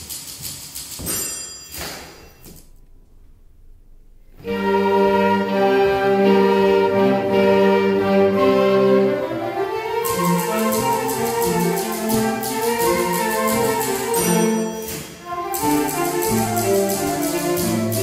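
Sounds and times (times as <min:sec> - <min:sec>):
typewriter clicks: 0:00.0 - 0:02.1, 0:10.0 - 0:18.0
desk bell ringing: 0:01.0 - 0:02.7, 0:10.2 - 0:15.7
orchestra playing held chords: 0:03.6 - 0:18.0.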